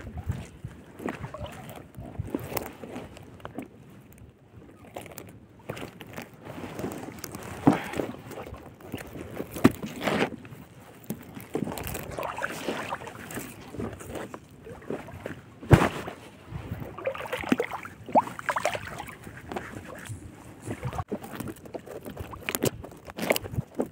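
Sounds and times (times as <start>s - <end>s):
water sloshing: 0.0s - 4.0s, 4.6s - 23.9s
net twine rustling and scraping: 4.9s - 14.9s.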